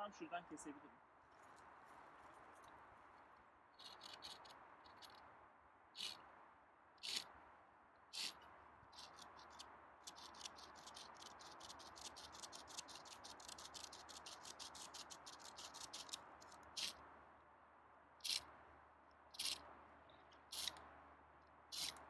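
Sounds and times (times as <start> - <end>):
saw blade cutting branch: 3.8 - 5.2, 6.0 - 6.2, 7.0 - 7.3, 8.1 - 17.0, 19.4 - 19.6, 20.5 - 20.8, 21.7 - 22.0.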